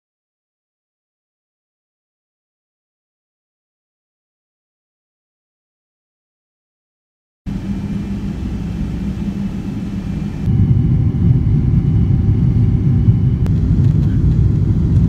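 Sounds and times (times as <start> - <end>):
jet engine and airflow rumble: 7.5 - 15.0.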